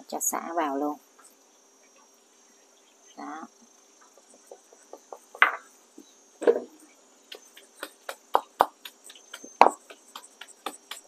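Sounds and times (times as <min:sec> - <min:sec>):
crickets chirping: 0:00.0 - 0:11.0
wooden pestle pounding in mortar: 0:07.3 - 0:11.0.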